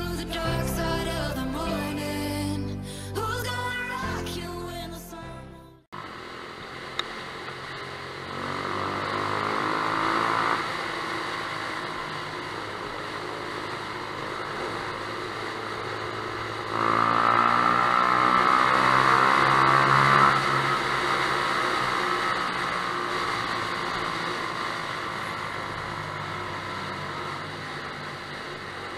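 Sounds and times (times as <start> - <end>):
motorcycle engine in tunnel: 6.0 - 28.9.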